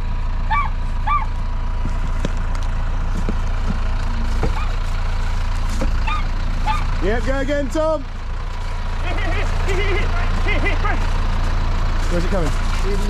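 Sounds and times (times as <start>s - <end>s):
tractor engine idling: 0.0s - 13.0s
high arched calls: 0.5s - 1.3s, 6.0s - 7.0s.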